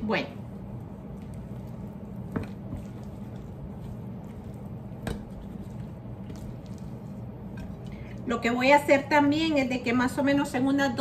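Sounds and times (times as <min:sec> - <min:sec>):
steady low hum: 0:00.0 - 0:11.0
hands squishing wet fish: 0:00.4 - 0:08.2.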